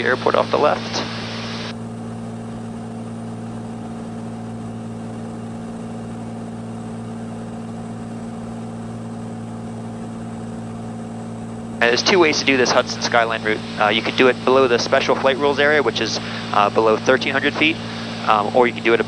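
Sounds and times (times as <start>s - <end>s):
propeller plane engine drone: 0.0s - 19.0s.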